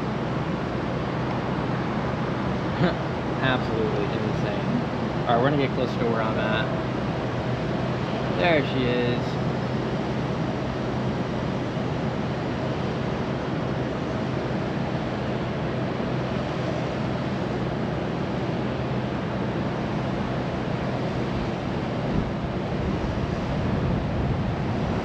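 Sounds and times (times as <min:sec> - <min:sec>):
drone propellers humming: 0:00.0 - 0:25.0
wind buffeting microphone: 0:21.3 - 0:25.0.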